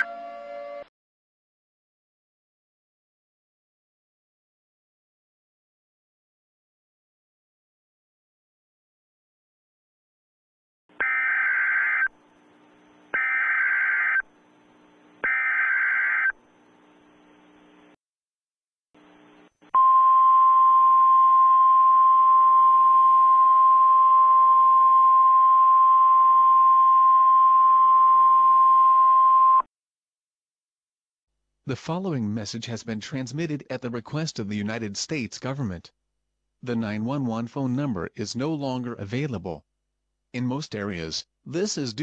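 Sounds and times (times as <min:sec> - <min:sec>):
warbling data bursts: 0:13.2 - 0:14.2.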